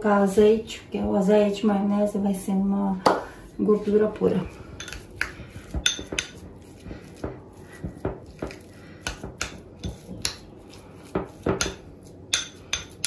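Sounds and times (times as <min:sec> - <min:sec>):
fork mashing filling: 0:03.2 - 0:13.0.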